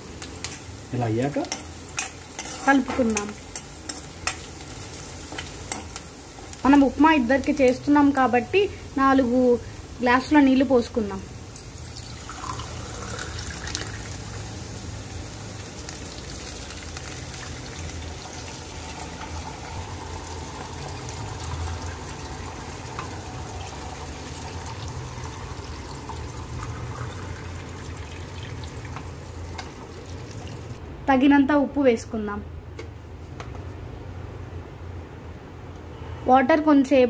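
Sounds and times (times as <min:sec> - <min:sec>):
water pouring into pan: 0:11.8 - 0:14.5, 0:16.0 - 0:30.8.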